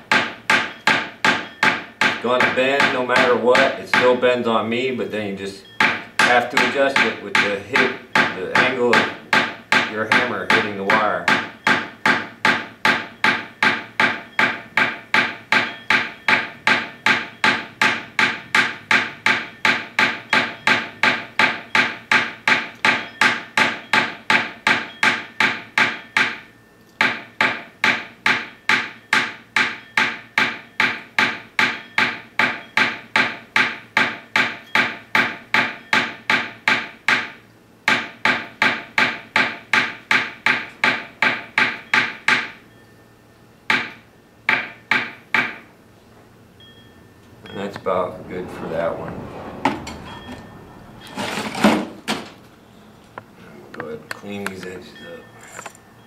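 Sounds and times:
hammer striking metal wire: 0.0 - 4.3, 5.8 - 42.6.

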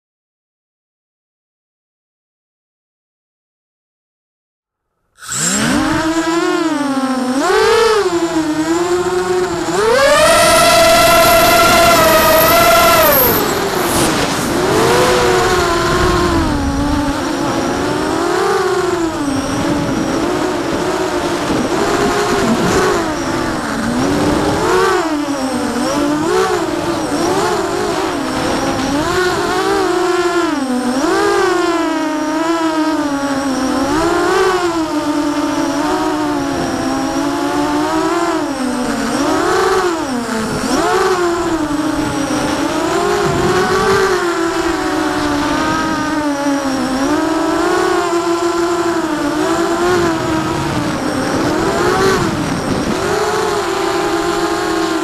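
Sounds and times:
drone propellers whining: 5.2 - 55.0.

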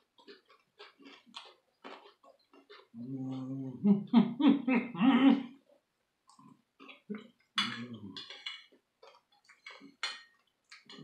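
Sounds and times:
crunching taco shells: 0.0 - 3.0
person making wordless voiced sound: 3.0 - 5.6.

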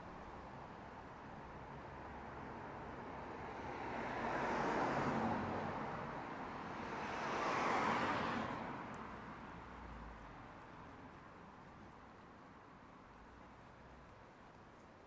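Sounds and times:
vehicles passing: 0.1 - 11.1
tyres hissing on road: 6.6 - 9.2.

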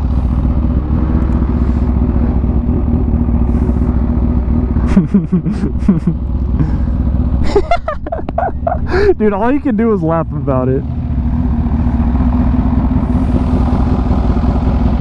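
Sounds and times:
motorcycle engine low rumble: 0.0 - 15.0.

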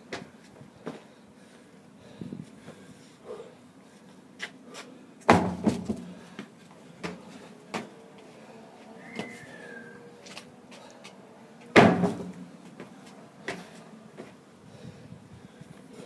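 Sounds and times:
heavy deep thud: 11.8 - 12.4.

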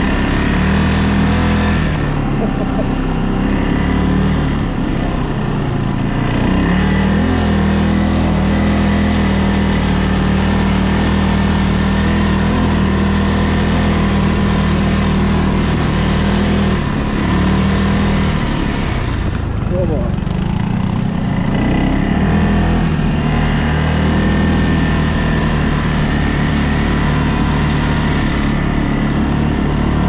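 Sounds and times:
atv engine running: 0.0 - 30.0.

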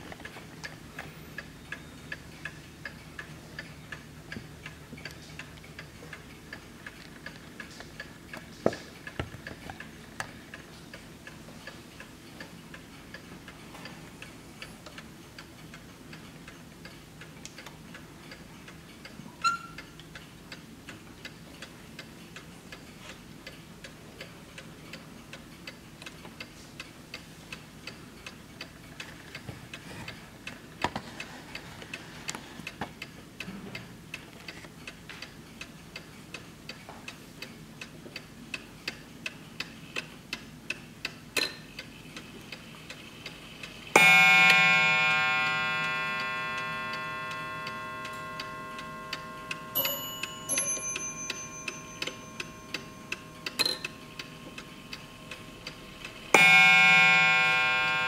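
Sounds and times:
clock ticking: 34.8 - 58.0
hammer striking ringing gong: 44.0 - 54.6, 56.3 - 58.0.

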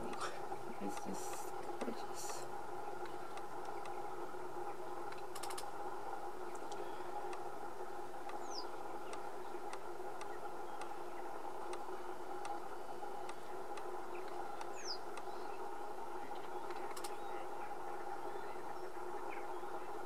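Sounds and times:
faint ticks: 0.0 - 4.0, 6.5 - 7.5, 8.2 - 11.0, 11.6 - 15.3
steady hum: 0.0 - 20.0.

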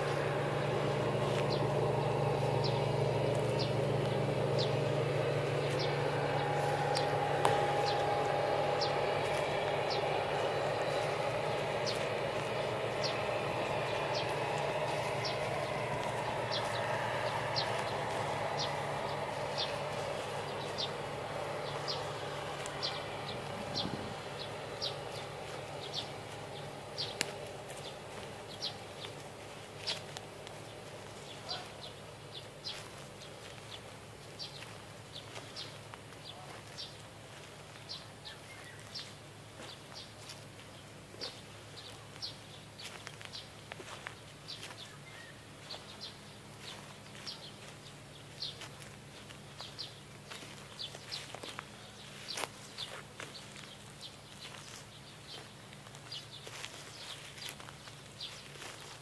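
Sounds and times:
faint low hum: 0.0 - 59.0
bird chirping: 0.9 - 37.0.

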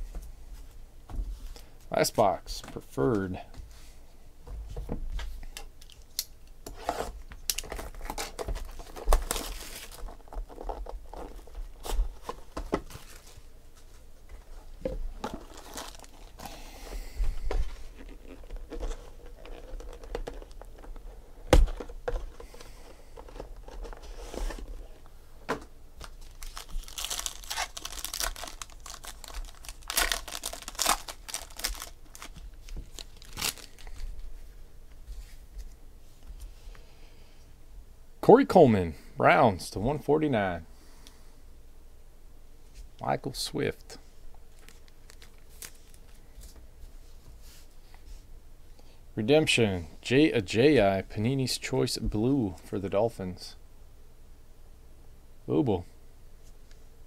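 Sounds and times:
foil wrapper crinkling and tearing: 7.4 - 13.5, 15.2 - 16.6, 17.8 - 21.1, 26.0 - 34.2, 44.5 - 46.2.

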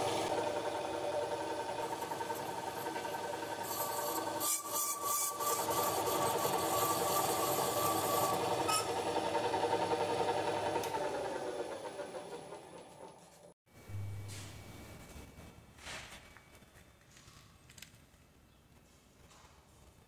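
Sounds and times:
cutter scraping metal: 1.7 - 9.1.

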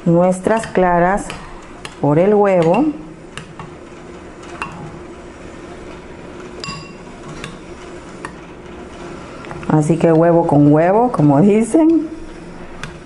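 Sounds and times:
metal spoon clinking ceramic bowl: 6.6 - 7.0.

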